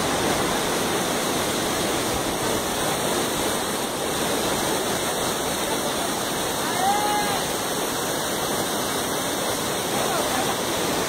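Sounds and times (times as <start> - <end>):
water rippling over rocks: 0.0 - 11.0
waterfall rushing: 0.0 - 11.0.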